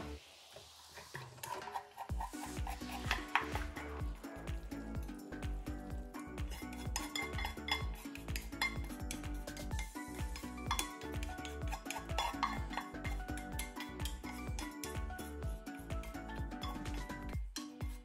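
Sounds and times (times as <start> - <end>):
quiet background music: 0.0 - 18.0
utensil clinking against cookware: 1.1 - 5.5, 6.2 - 15.4.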